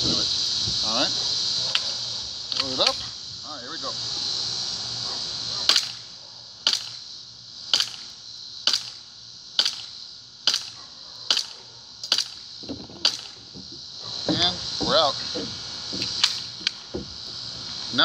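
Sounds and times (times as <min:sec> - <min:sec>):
airsoft pistol shots: 0:05.6 - 0:07.0, 0:07.7 - 0:09.0, 0:09.6 - 0:12.4, 0:13.0 - 0:13.4.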